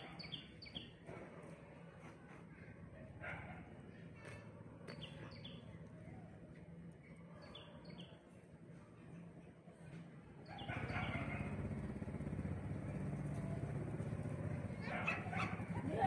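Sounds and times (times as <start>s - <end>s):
small birds chirping: 0.0s - 1.0s, 4.9s - 6.0s, 10.4s - 11.6s.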